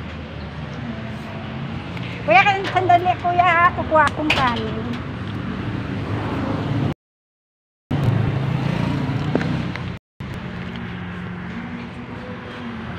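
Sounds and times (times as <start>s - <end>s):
street traffic: 0.0s - 7.0s, 7.9s - 12.9s
vehicle engine humming: 7.9s - 12.9s.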